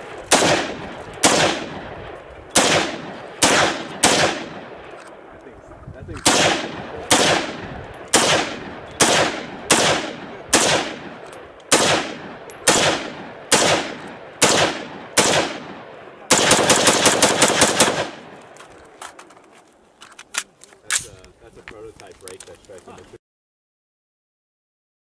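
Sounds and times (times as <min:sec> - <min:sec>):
rifle shots with echo: 0:00.0 - 0:05.4, 0:06.1 - 0:18.6
rapid rifle fire: 0:00.3 - 0:01.9, 0:02.6 - 0:04.7, 0:06.2 - 0:18.2.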